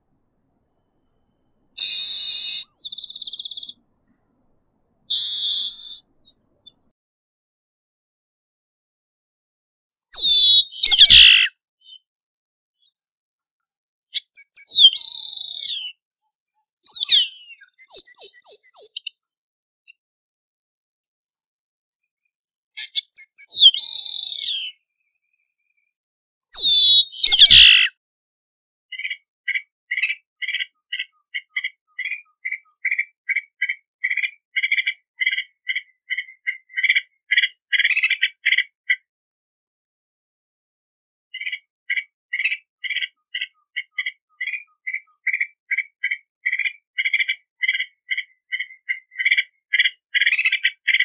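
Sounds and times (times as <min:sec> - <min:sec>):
bird calling sharp notes: 0:01.8 - 0:03.8, 0:05.1 - 0:06.8, 0:10.1 - 0:12.0, 0:16.9 - 0:19.1, 0:26.6 - 0:28.0
blackbird singing: 0:01.8 - 0:03.8, 0:05.1 - 0:06.9, 0:10.1 - 0:12.0, 0:14.1 - 0:16.0, 0:16.8 - 0:19.2, 0:22.8 - 0:25.5, 0:26.5 - 0:28.0, 0:29.9 - 0:38.2, 0:42.3 - 0:51.0.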